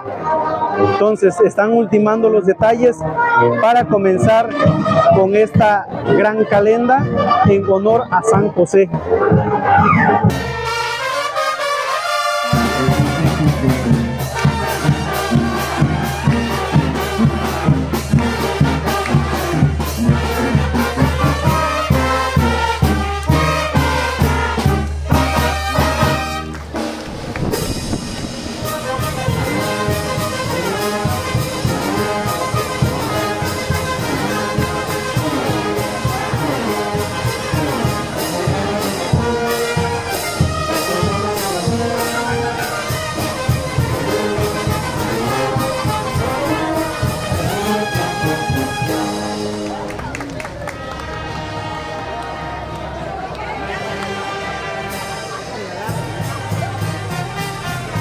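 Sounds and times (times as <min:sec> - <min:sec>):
brass band music: 0:00.0 - 0:58.0
heavy bass beat: 0:12.5 - 0:23.9.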